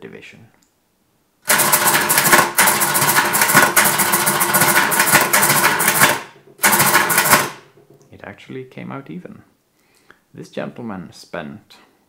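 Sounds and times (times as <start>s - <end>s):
mechanical calculator clattering: 1.4s - 7.9s.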